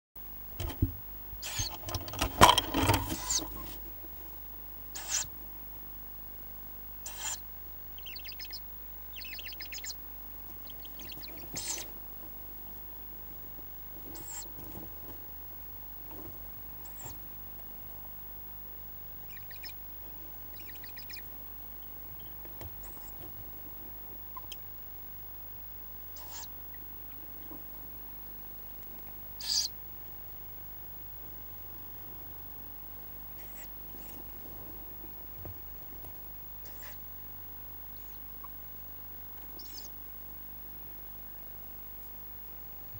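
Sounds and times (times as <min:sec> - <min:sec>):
steady low hum: 0:00.2 - 0:42.9
owl chicks hissing begging calls: 0:01.4 - 0:01.8, 0:03.2 - 0:03.7, 0:04.9 - 0:05.4, 0:07.0 - 0:10.0, 0:10.6 - 0:12.0, 0:14.1 - 0:14.6, 0:16.8 - 0:17.2, 0:19.2 - 0:19.8, 0:20.5 - 0:21.3, 0:26.1 - 0:26.6, 0:29.4 - 0:29.8, 0:33.4 - 0:34.1, 0:36.6 - 0:37.0, 0:38.0 - 0:38.3, 0:39.5 - 0:40.0
knocks and scrabbling on wood: 0:01.7 - 0:03.8.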